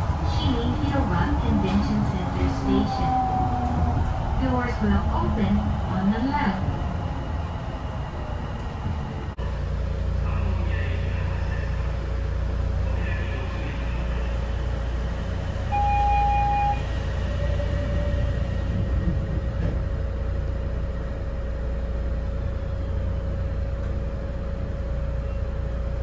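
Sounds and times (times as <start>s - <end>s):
train cabin rumble and hum: 0.0s - 26.0s.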